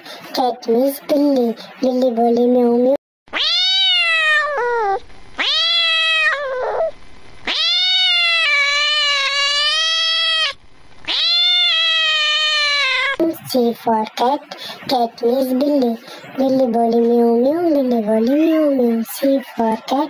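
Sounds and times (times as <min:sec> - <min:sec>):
cat meowing: 0:03.3 - 0:13.2.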